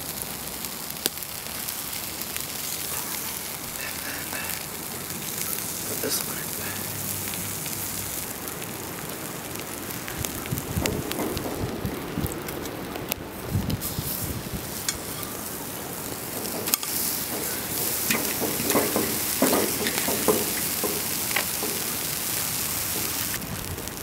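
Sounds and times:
sandwich sizzling in a skillet: 0:00.0 - 0:24.0
metal spatula scraping a pan: 0:16.1 - 0:23.3.

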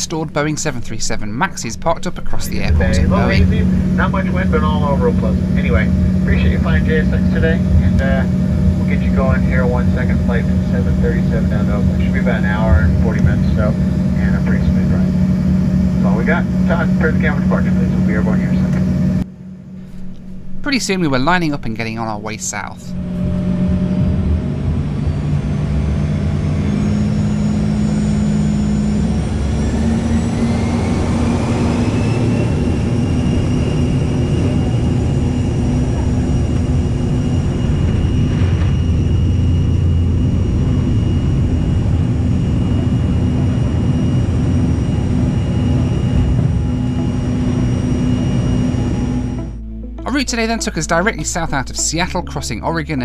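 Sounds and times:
jet engine roar: 0:00.0 - 0:49.6
jet engine whine: 0:00.0 - 0:52.7.

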